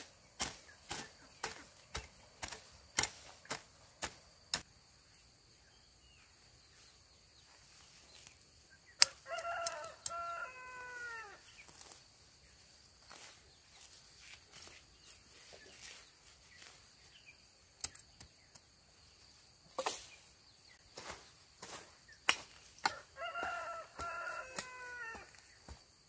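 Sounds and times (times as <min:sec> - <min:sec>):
rapid chopping strikes: 0:00.4 - 0:04.6
rooster crowing: 0:09.0 - 0:11.4, 0:22.9 - 0:25.4.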